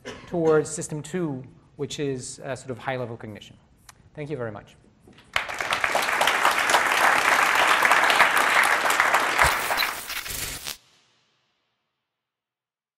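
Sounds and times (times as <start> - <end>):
audience applauding: 5.3 - 10.2.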